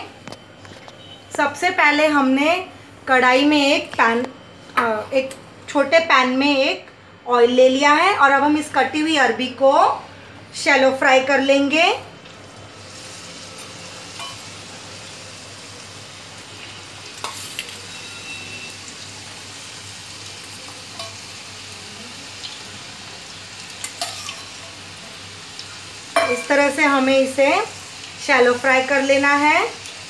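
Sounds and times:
food sizzling in hot oil: 0:11.0 - 0:30.0.

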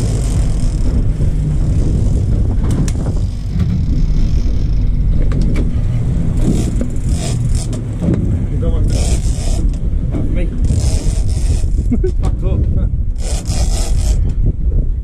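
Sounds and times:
water rushing in wake: 0:00.0 - 0:12.0
boat engine running: 0:00.0 - 0:15.0.

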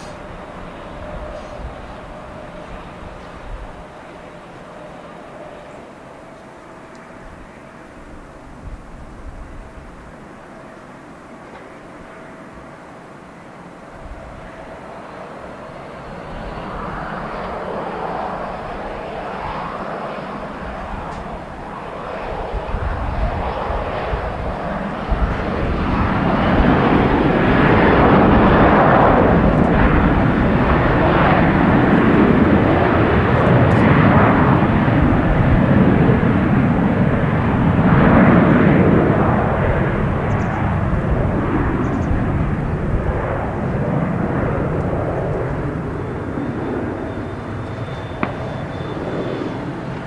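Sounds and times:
faint high whine: 0:00.0 - 0:24.3, 0:45.0 - 0:50.0
jet engine roar: 0:00.0 - 0:50.0.

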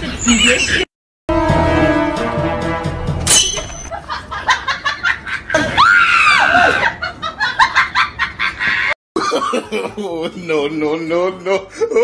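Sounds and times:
laughter: 0:03.9 - 0:05.8, 0:06.4 - 0:12.0.

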